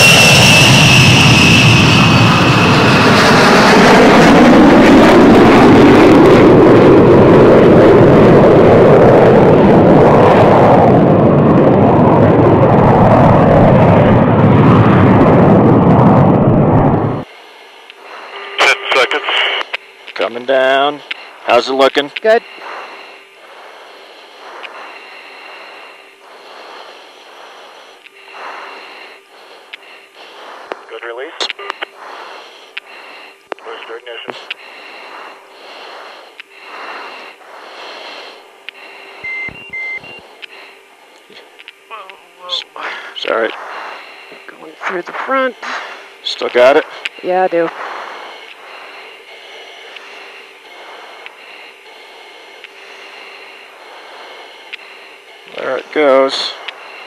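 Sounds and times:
faint steady hum: 0.0 - 57.0
faint steady tones: 0.0 - 57.0
steady hiss: 17.3 - 39.2, 40.1 - 57.0
slow breathing on intercom: 22.3 - 42.0, 42.8 - 44.6, 46.8 - 57.0.

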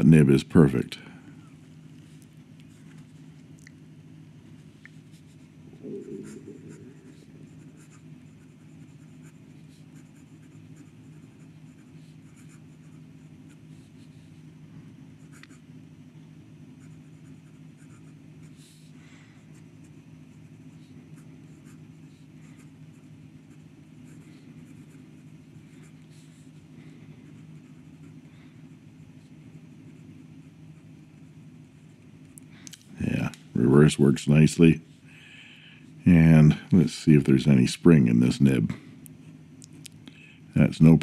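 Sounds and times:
steady low hum: 0.0 - 41.0
pen nib scratching on paper: 6.2 - 14.4.

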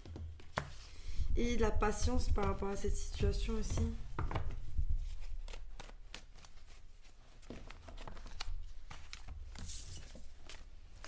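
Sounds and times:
cards being shuffled: 3.7 - 11.0.

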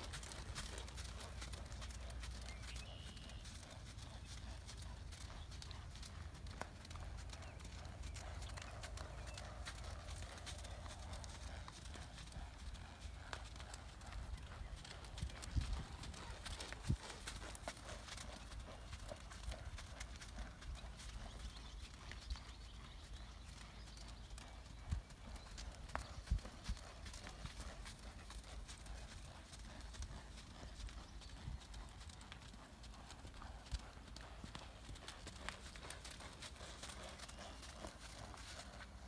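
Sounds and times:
horse hoofbeats on dirt: 0.0 - 39.0.

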